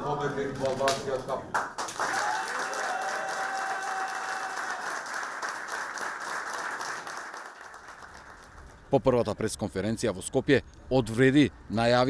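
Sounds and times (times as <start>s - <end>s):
crowd applauding: 1.6s - 8.9s
crowd cheering: 1.9s - 8.6s.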